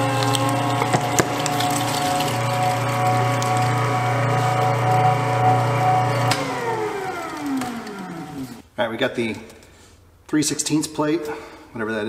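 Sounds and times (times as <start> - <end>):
meat grinder motor humming: 0.0 - 8.6.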